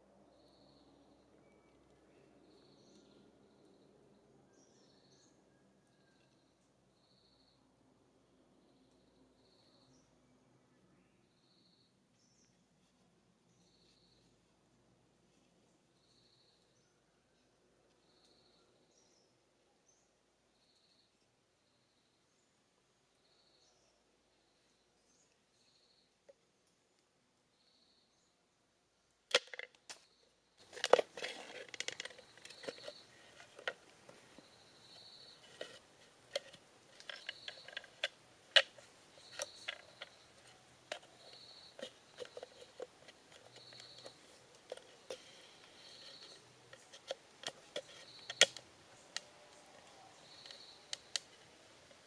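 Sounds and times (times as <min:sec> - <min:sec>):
faint high chirp: 0:47.6 - 0:51.2.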